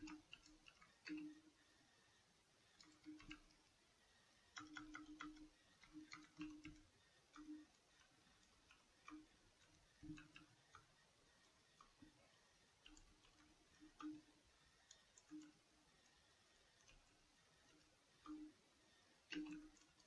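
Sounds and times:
computer keyboard typing: 0.0 - 1.4, 2.8 - 3.6, 4.5 - 10.9, 12.8 - 14.3, 14.9 - 15.6, 19.3 - 20.0.

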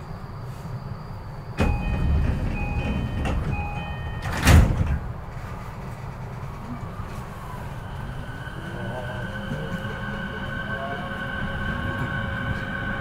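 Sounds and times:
train door chime: 1.6 - 5.0
sliding doors shutting thud: 1.6 - 5.4.

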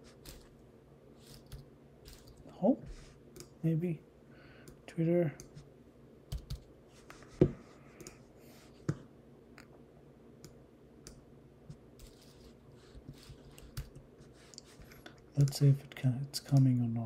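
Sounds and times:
keyboard and mouse clicks: 6.3 - 6.7, 15.4 - 15.6, 16.4 - 16.8.

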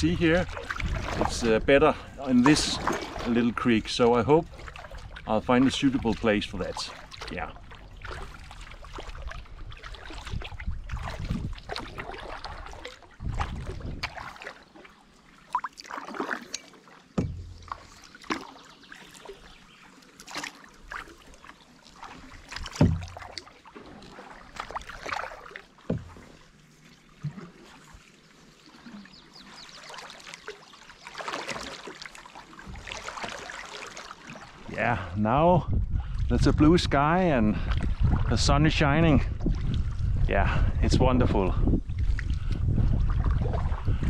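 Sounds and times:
paddle splashes and water drips: 0.0 - 44.0
dull knocks: 17.2 - 17.5, 22.7 - 23.2.

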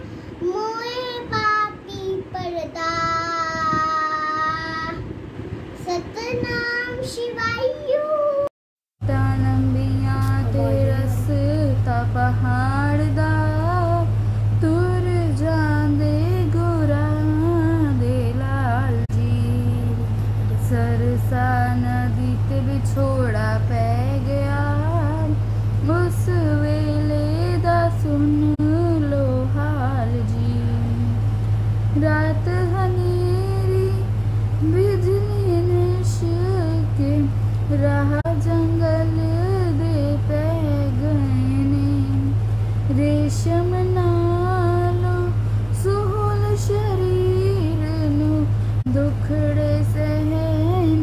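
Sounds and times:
girl singing slow melody: 0.0 - 51.0
steady low hum: 0.0 - 51.0
girl singing into microphone: 9.1 - 14.0.

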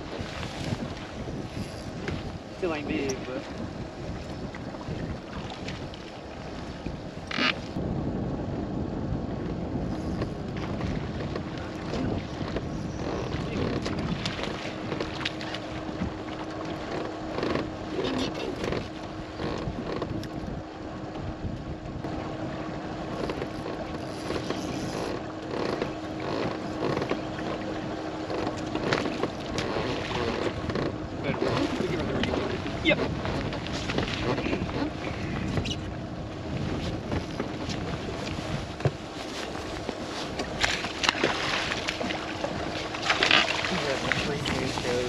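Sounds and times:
knocks and clatters on boat: 0.0 - 7.8, 8.5 - 45.0
water lapping at boat hull: 0.0 - 7.8, 9.2 - 45.0
wind buffeting microphone: 0.0 - 45.0.

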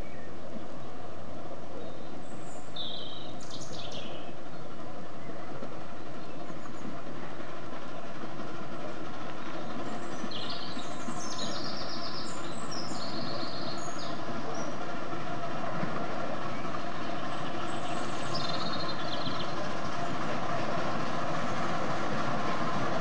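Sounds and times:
miniature steam train running on rails: 0.0 - 23.0.

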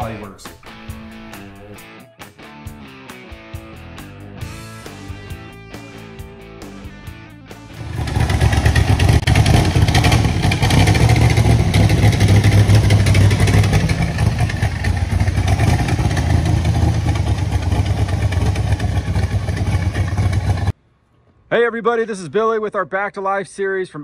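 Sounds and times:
intro music: 0.0 - 18.2
car engine rumbling: 7.7 - 20.7.

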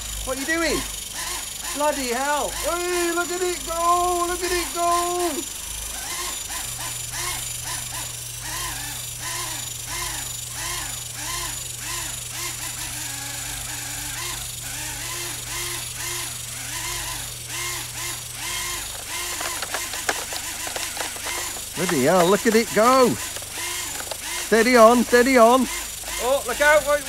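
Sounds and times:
helicopter motor and rotor droning: 0.0 - 27.0.

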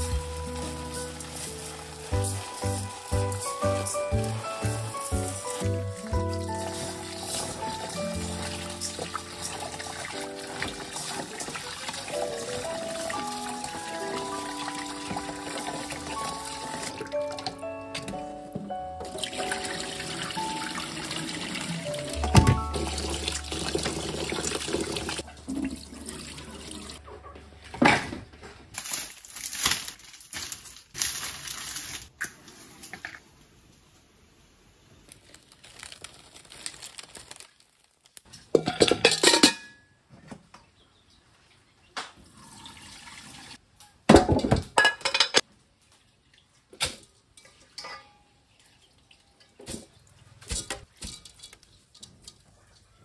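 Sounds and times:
tap water running: 0.0 - 17.6, 19.0 - 27.0, 42.2 - 43.6
water splashing and sloshing: 0.0 - 17.6, 19.0 - 32.9, 45.4 - 52.6
metal pots knocking: 38.5 - 39.8, 44.1 - 45.4.

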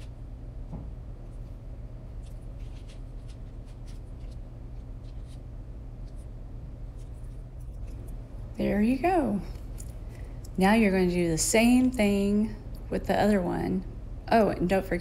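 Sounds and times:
steady low hum: 0.0 - 15.0
fork scraping pastry dough: 2.2 - 6.3.

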